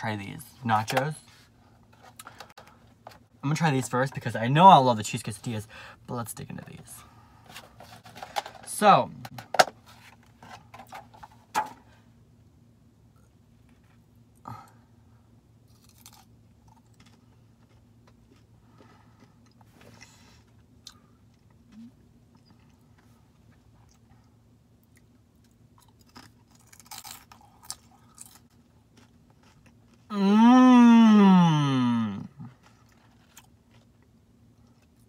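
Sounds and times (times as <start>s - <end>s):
faint steady hum: 0.0s - 35.0s
chewing chips: 15.7s - 30.1s, 32.2s - 35.0s
drawn-out vocal sound: 30.1s - 32.5s.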